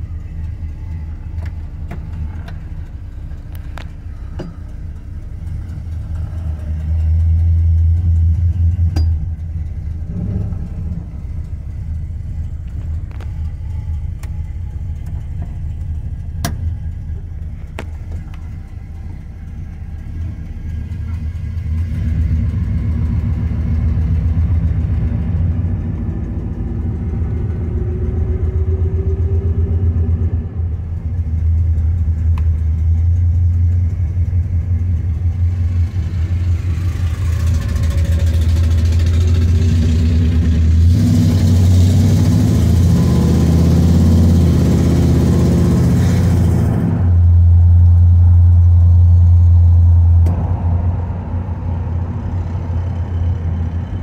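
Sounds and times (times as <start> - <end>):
car engine rumbling and accelerating: 0.0 - 54.0.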